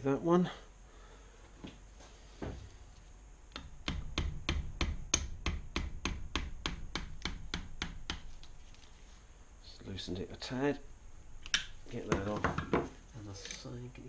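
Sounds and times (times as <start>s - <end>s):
mallet tapping on metal tool: 3.6s - 8.3s.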